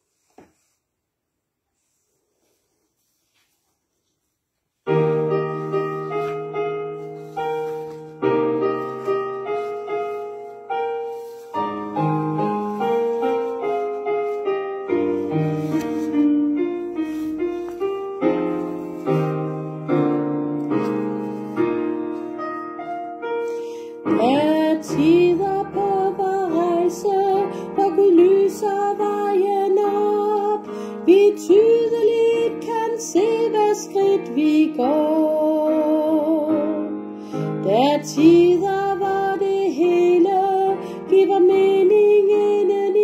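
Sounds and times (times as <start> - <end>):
piano chords: 4.8 - 43.0
woman singing: 24.0 - 37.0, 37.6 - 43.0.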